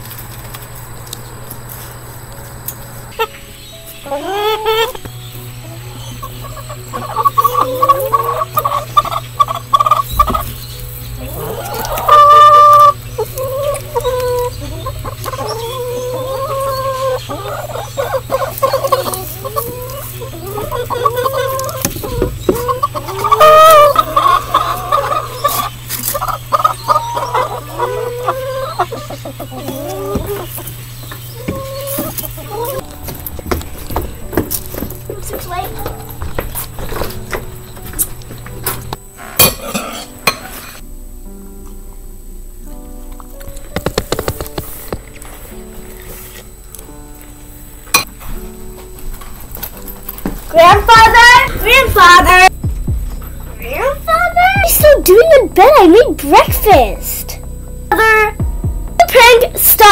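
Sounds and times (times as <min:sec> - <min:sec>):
hens clucking: 0:00.0 - 0:40.6, 0:48.0 - 0:59.9
hen drawn-out calls: 0:04.0 - 0:05.0, 0:06.1 - 0:32.8.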